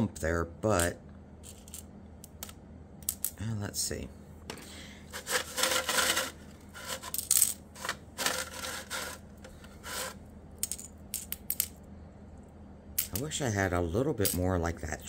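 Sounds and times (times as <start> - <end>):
glass pieces clinking and scraping: 5.2 - 9.2.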